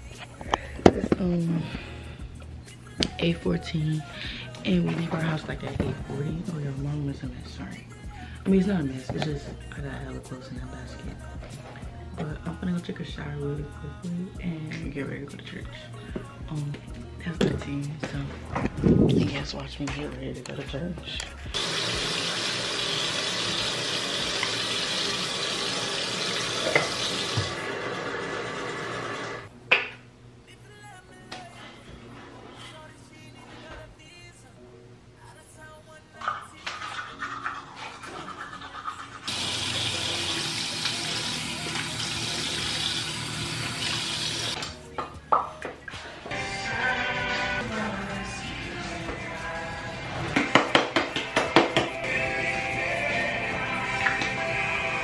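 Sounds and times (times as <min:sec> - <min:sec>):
faucet water running into sink: 0:21.6 - 0:29.5, 0:38.6 - 0:44.7
toothbrush scrubbing: 0:36.2 - 0:44.6.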